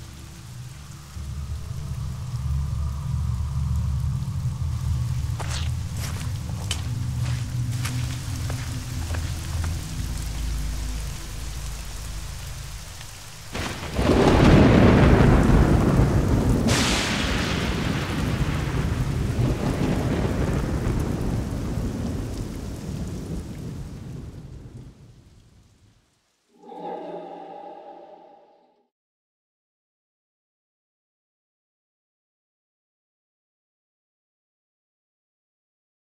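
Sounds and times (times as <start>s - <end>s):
steady rain: 0.0s - 26.5s
thunder rumbling and cracking: 2.3s - 25.4s.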